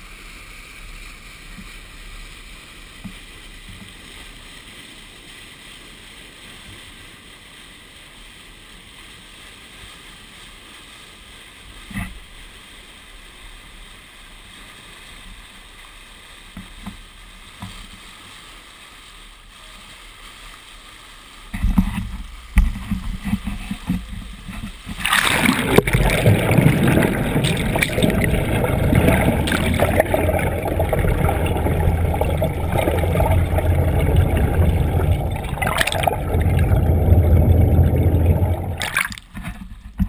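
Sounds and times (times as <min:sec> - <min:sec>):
rushing water: 0:00.0 - 0:40.0
splashing water: 0:24.5 - 0:40.0
boat engine hum: 0:25.2 - 0:39.2.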